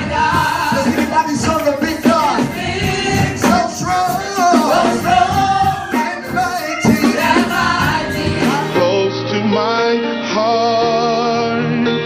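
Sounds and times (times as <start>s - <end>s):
band with steady beat: 0.0s - 9.2s
gospel vocal group singing: 0.0s - 12.0s
man leading singing: 0.0s - 12.0s.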